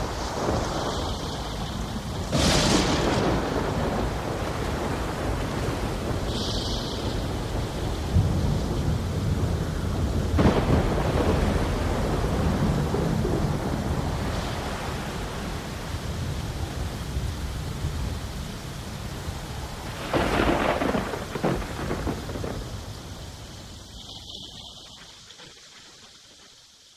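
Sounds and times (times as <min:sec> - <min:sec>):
steady rushing hiss: 0:00.0 - 0:26.9.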